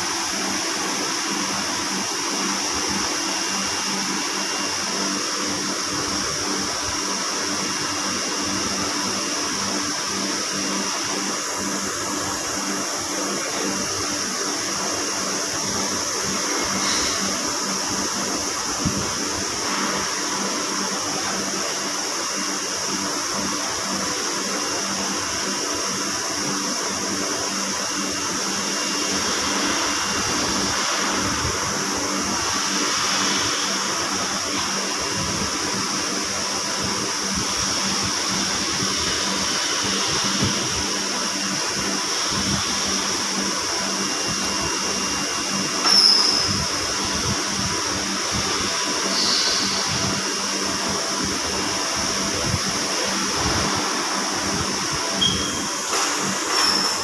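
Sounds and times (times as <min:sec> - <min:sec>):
industrial machinery drone and hiss: 0:00.0 - 0:57.0
high-pitched squeal: 0:55.2 - 0:55.8.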